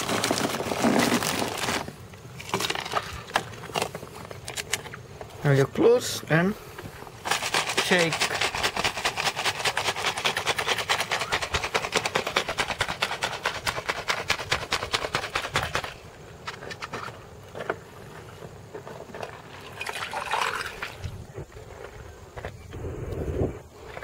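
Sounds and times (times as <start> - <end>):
ice rattling in drink shaker: 0.0 - 3.9, 7.2 - 16.1, 19.1 - 21.1.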